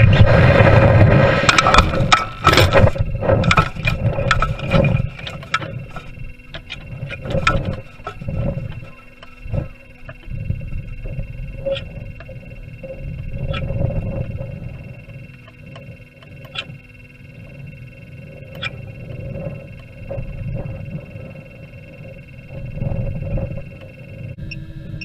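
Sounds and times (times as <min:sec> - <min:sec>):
faint steady tones: 0:00.0 - 0:25.0
wind buffeting camera: 0:00.0 - 0:25.0
sharp clicks: 0:01.4 - 0:14.4, 0:15.0 - 0:16.8, 0:18.5 - 0:18.8.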